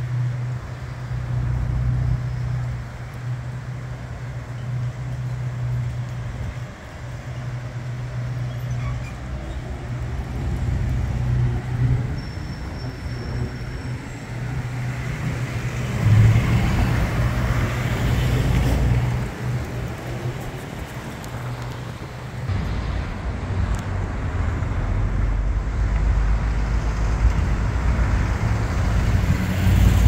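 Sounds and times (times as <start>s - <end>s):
cars driving past: 0.0s - 30.0s
vehicle passing close: 14.4s - 30.0s.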